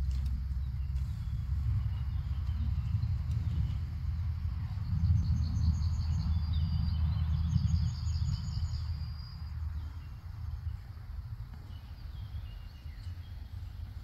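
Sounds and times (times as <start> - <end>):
low rumble: 0.0 - 14.0
songbird trilling: 4.6 - 10.8, 11.6 - 13.9.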